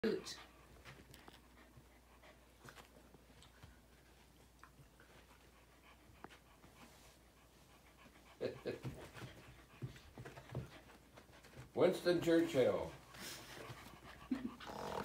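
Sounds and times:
dogs scuffling: 0:08.7 - 0:14.0
dog vocal sounds: 0:13.8 - 0:15.0.

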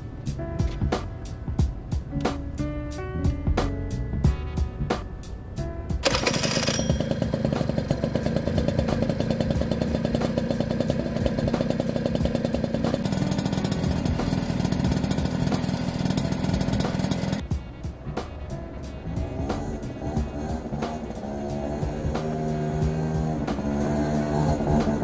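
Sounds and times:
scooter engine running: 0:06.0 - 0:25.0.

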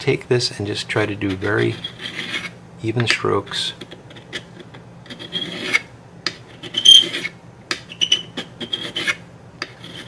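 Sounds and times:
metal file rasping on tube: 0:01.1 - 0:02.6, 0:03.8 - 0:10.0.

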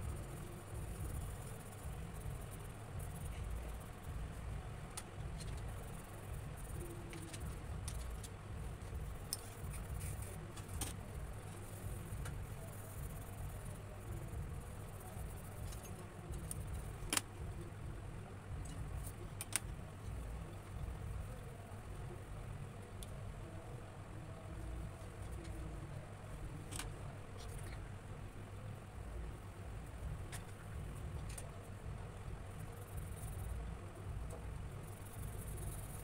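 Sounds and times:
steady low hum: 0:00.0 - 0:36.0
coloured pencils on paper: 0:05.0 - 0:23.6.

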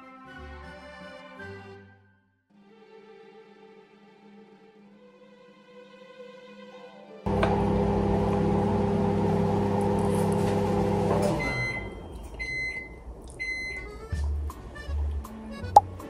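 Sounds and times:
microwave oven humming: 0:07.3 - 0:13.9
background music with soft beat: 0:13.4 - 0:16.0.

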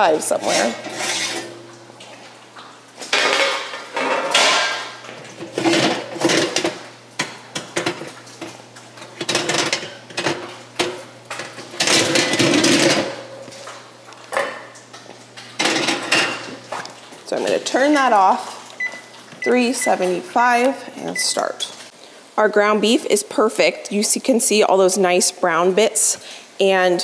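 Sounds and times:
metal bakeware clattering: 0:00.0 - 0:01.6, 0:03.1 - 0:08.2, 0:09.2 - 0:13.3, 0:15.6 - 0:16.6.

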